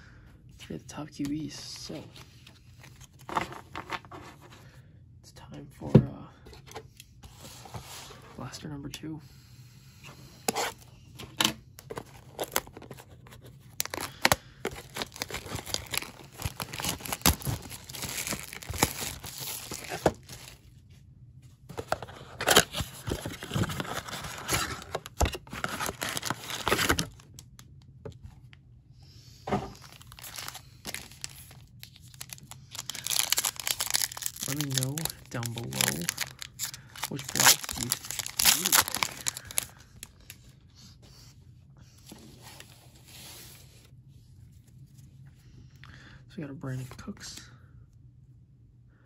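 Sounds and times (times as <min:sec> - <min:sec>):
foil packs crinkling: 0:11.8 - 0:20.7, 0:21.8 - 0:27.3, 0:29.8 - 0:40.1
cardboard box tearing open: 0:13.8 - 0:20.5, 0:21.9 - 0:27.1, 0:32.2 - 0:39.6.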